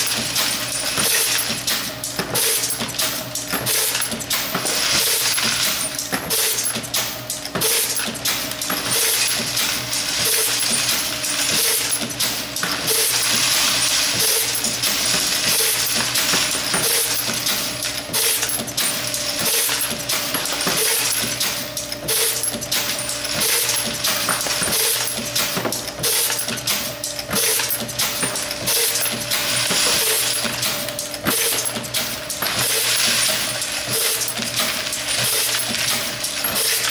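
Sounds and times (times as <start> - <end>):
regular mechanical beat: 0.0 - 36.9
brass cases clinking and rattling: 8.7 - 26.7, 27.5 - 36.9.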